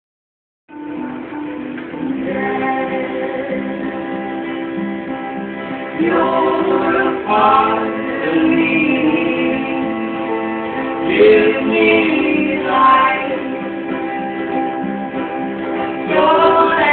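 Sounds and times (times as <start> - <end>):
live band with guitar: 0.7 - 16.9
people singing: 1.8 - 4.8, 5.7 - 14.7, 15.6 - 16.9.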